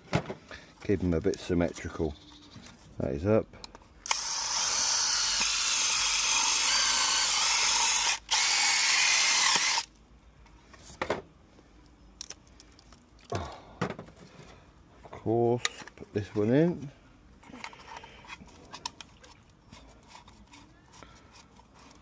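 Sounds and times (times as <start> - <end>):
drill boring through plastic: 4.0 - 9.9.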